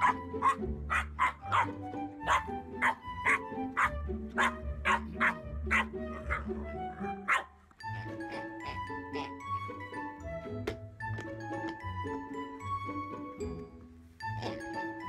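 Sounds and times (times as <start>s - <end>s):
squeaky toy squeaks: 0.0s - 9.3s
background music with bass: 0.0s - 15.0s.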